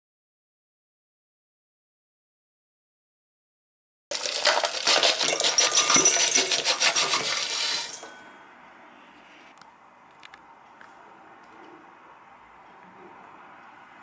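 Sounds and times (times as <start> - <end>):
soil and grit rattling in metal bowl: 4.1 - 8.2.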